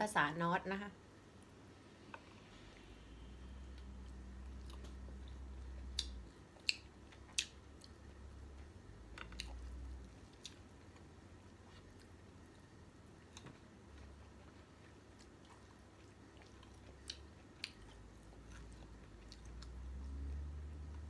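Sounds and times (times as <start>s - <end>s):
low rumble: 1.7s - 6.3s.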